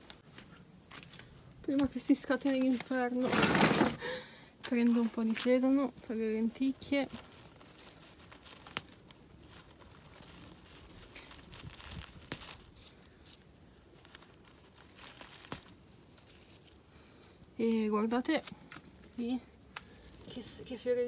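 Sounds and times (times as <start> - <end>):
celery leaves rustling and tearing: 1.8 - 3.9, 4.6 - 21.0
stems snapping: 6.6 - 20.4.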